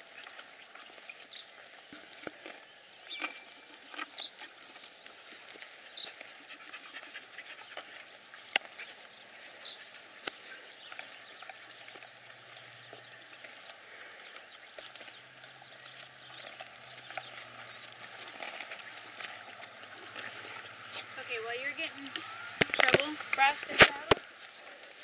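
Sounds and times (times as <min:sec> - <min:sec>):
dog panting: 0:05.9 - 0:09.6.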